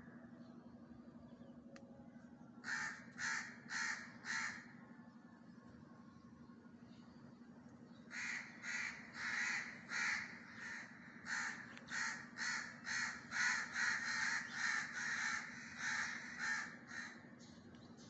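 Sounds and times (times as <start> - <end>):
crow cawing: 2.6 - 4.8, 8.1 - 17.2.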